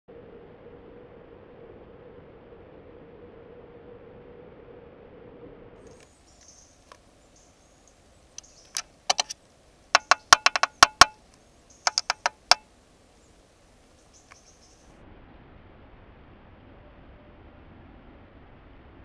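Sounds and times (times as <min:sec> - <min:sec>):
bird pecking on microphone: 0:08.7 - 0:09.4, 0:10.0 - 0:11.2, 0:11.9 - 0:12.6.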